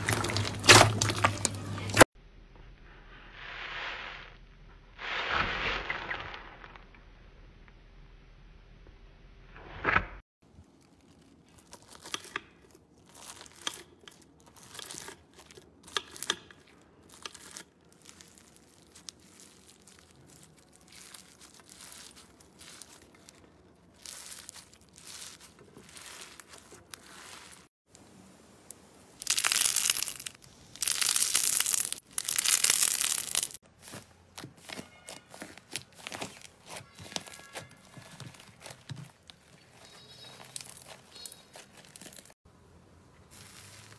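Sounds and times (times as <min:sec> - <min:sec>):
bead slime crackling and popping: 0:10.6 - 0:27.7, 0:29.2 - 0:33.6, 0:34.4 - 0:42.4
paper crinkling and tearing: 0:17.0 - 0:27.8, 0:29.2 - 0:42.4, 0:43.3 - 0:43.9.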